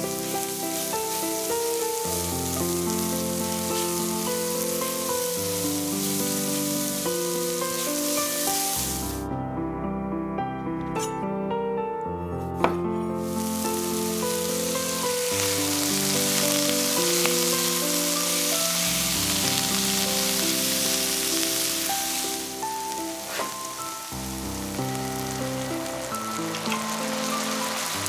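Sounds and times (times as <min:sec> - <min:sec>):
vegetables sizzling in oil: 0:00.0 - 0:09.2, 0:13.2 - 0:28.0
background music: 0:00.0 - 0:28.0
knife on chopping board: 0:23.3 - 0:23.6.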